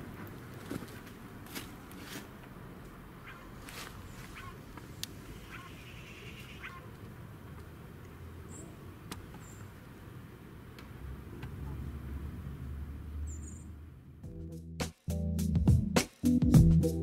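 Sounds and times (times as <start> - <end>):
music: 14.2 - 17.0.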